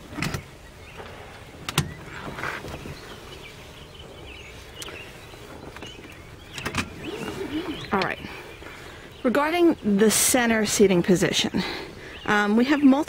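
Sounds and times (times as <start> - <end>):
seat belt webbing rustling: 1.7 - 3.7, 5.6 - 8.0.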